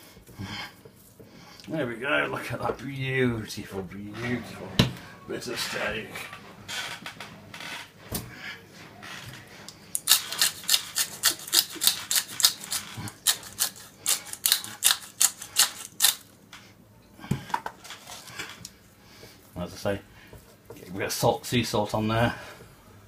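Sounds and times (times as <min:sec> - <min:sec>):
pepper mill grinding clicks: 0:10.0 - 0:16.2.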